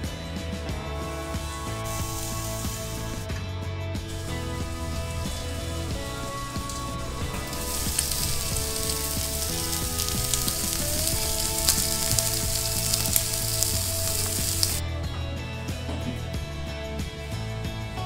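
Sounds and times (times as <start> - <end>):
background music with held notes: 0.0 - 18.0
meat sizzling on a grill: 1.7 - 3.2, 4.1 - 14.8.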